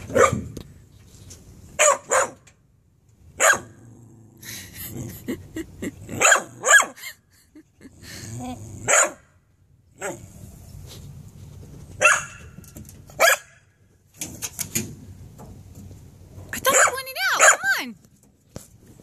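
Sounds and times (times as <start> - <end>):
puppy barking and growling: 3.4 - 7.1, 7.8 - 9.3, 9.9 - 10.5, 16.6 - 17.7.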